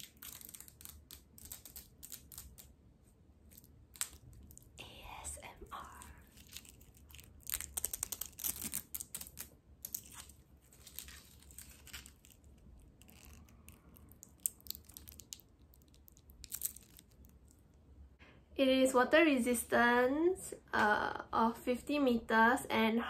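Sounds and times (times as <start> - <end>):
plastic film peeling crackles: 0.0 - 2.7, 3.5 - 4.8, 5.9 - 17.7.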